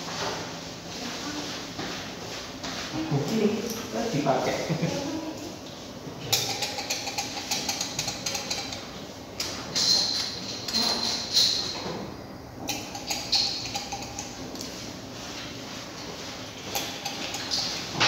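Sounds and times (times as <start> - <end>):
glass test tubes clinking: 9.7 - 11.8.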